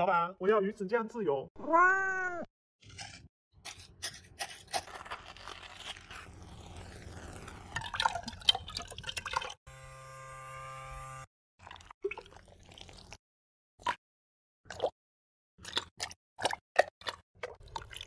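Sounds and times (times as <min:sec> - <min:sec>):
electric frother humming: 0:09.7 - 0:11.3.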